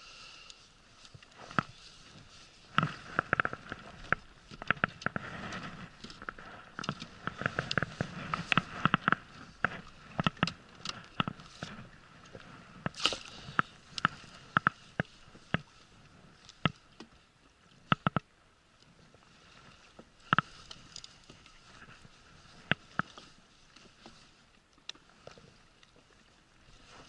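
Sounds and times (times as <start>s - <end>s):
water lapping against hull: 0.0s - 27.0s
fishing gear clicking and knocking: 2.7s - 11.8s, 12.8s - 15.7s, 17.9s - 18.2s.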